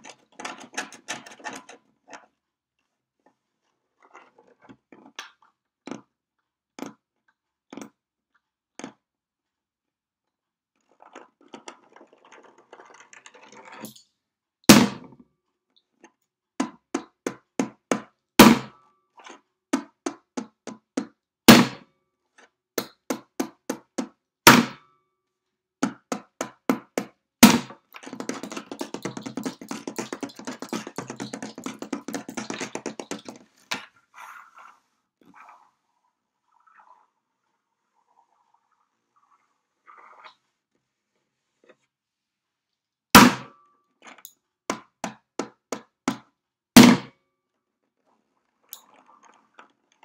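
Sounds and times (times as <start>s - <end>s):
hand drumming on wooden table: 25.8s - 33.5s.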